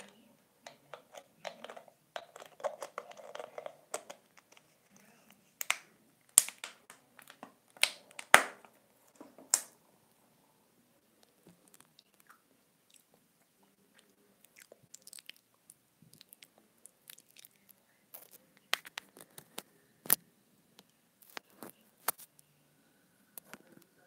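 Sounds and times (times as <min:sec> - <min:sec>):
teeth nibbling earphone cable: 0:11.2 - 0:20.2.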